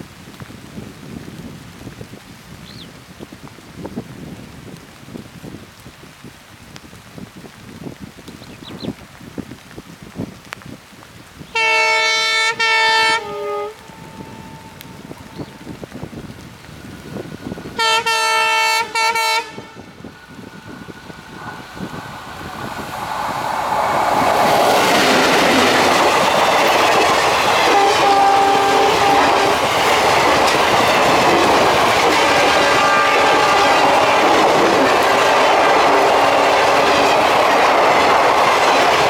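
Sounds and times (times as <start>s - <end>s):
locomotive horn blast: 11.6s - 15.3s, 17.8s - 19.9s, 27.6s - 29.8s, 31.3s - 34.6s
diesel locomotive engine passing: 12.6s - 39.0s
passenger coaches rolling by: 12.6s - 39.0s
wheels clacking over rail joints: 22.3s - 39.0s.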